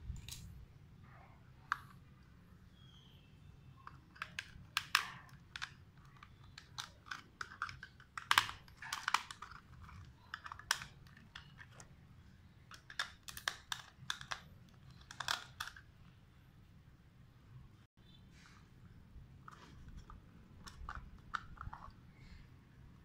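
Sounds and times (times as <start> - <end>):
screwdriver clicking on plastic: 3.8 - 11.9, 12.7 - 15.8.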